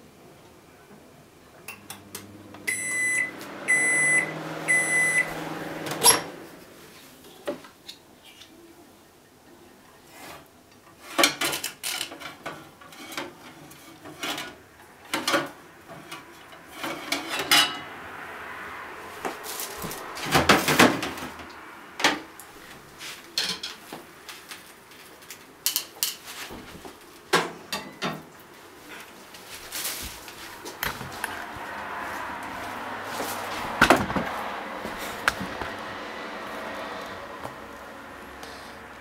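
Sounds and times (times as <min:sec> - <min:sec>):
crockery clinking and knocking: 0:27.7 - 0:28.2.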